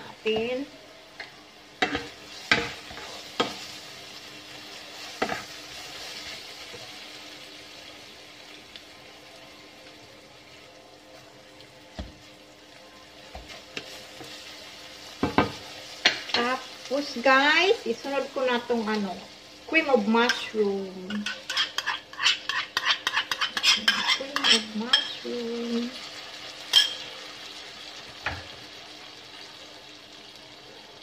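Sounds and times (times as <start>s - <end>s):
chicken sizzling in wok: 0.0s - 31.0s
spatula scraping and knocking pan: 21.1s - 25.1s.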